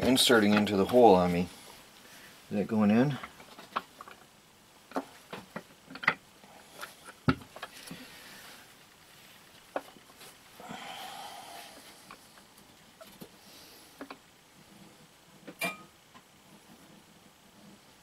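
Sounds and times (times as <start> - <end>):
plastic parts clicking and knocking: 4.9 - 6.2.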